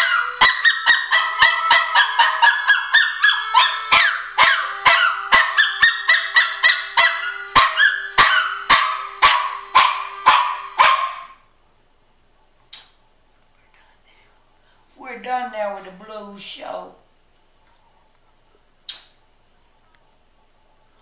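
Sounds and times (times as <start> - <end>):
dog howling: 0.0 - 11.4
harmonica blues rhythm: 0.0 - 11.4.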